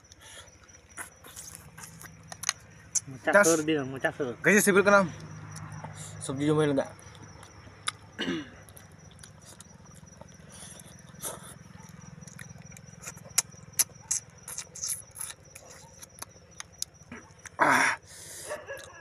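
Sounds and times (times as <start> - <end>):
chewing: 0.0 - 3.6, 5.1 - 6.2, 6.9 - 19.0
snail shells clicking: 1.4 - 3.1.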